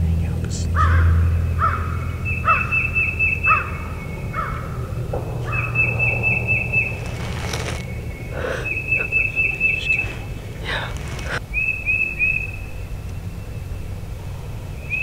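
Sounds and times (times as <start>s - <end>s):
steady low rumble: 0.0s - 11.6s
crow cawing: 0.8s - 2.8s, 4.4s - 4.9s
songbird singing high notes: 5.5s - 10.6s.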